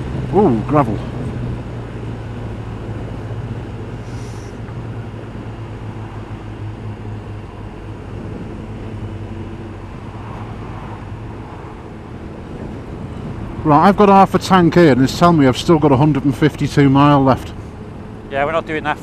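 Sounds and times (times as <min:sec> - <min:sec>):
motorcycle engine cruising: 0:00.0 - 0:19.0
wind and road noise: 0:00.0 - 0:19.0
brief hiss: 0:04.0 - 0:04.6.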